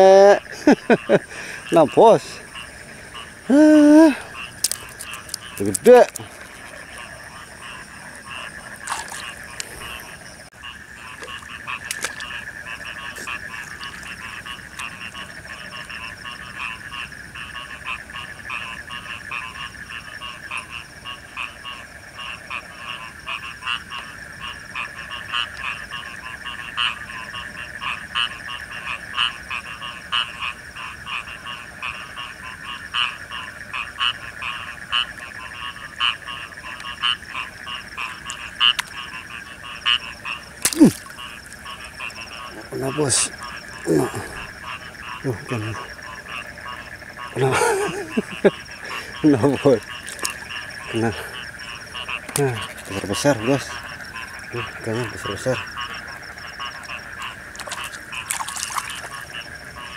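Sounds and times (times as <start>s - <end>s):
frogs calling in chorus: 0.0s - 59.9s.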